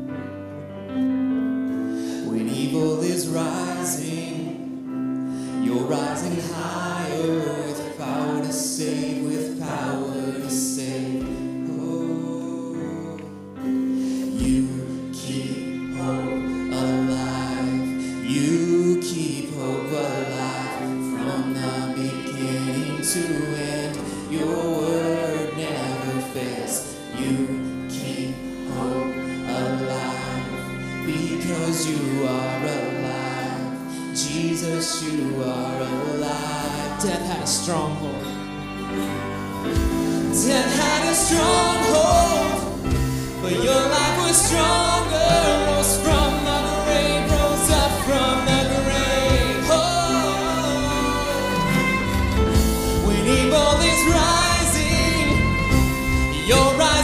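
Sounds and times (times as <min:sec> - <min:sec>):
electric guitar: 0:00.0 - 0:57.0
keyboard chords: 0:00.0 - 0:57.0
violin: 0:00.0 - 0:57.0.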